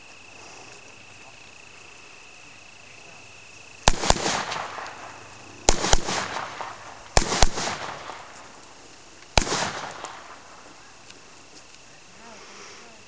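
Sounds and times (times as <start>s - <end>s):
rifle gunshots: 3.8s - 8.4s, 9.4s - 10.6s
gunshot echo: 3.9s - 8.4s, 9.4s - 10.6s.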